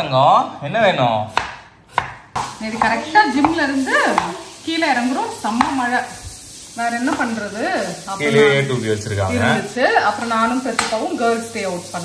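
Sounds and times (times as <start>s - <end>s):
knife slicing onions on board: 1.3s - 4.6s, 5.4s - 5.9s.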